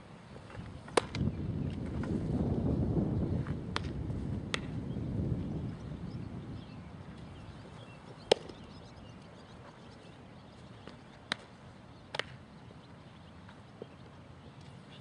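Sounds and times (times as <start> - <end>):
bat striking ball: 0.9 - 1.2, 3.7 - 4.8, 8.3 - 8.6, 12.1 - 12.4.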